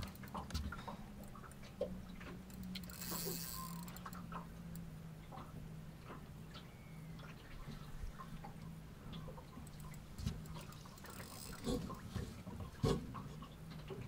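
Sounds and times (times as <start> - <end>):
fishing reel ticking: 2.5 - 4.9, 9.6 - 12.0.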